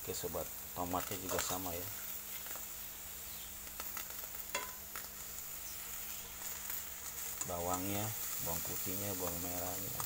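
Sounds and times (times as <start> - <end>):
food sizzling in a metal pan: 0.0 - 10.0.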